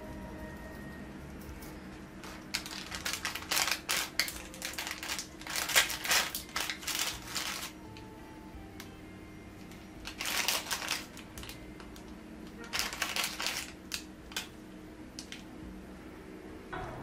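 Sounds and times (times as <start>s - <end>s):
steady low hum: 0.0s - 17.0s
plastic gloves crinkling: 2.2s - 8.1s, 9.6s - 14.6s.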